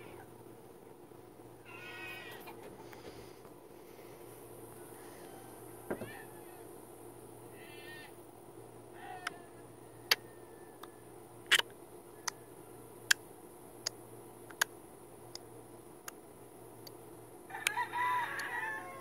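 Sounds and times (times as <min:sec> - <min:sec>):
faint steady hum: 0:00.0 - 0:19.0
animal calls: 0:01.6 - 0:02.7, 0:07.4 - 0:08.2, 0:08.9 - 0:11.6
sharp clicks: 0:11.5 - 0:12.4, 0:13.8 - 0:16.2.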